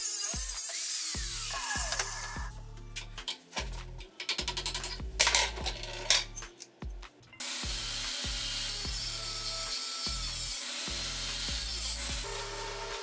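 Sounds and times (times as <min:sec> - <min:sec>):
angle grinder grinding steel: 0:00.0 - 0:02.5, 0:07.4 - 0:13.0
background music with beat: 0:01.2 - 0:13.0
metal clicks and knocks: 0:03.0 - 0:06.7.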